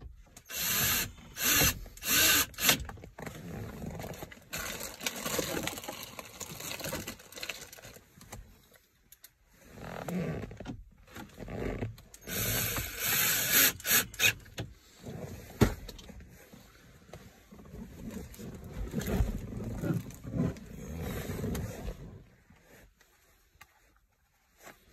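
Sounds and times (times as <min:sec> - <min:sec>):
fabric rustling against microphone: 0:14.8 - 0:24.9.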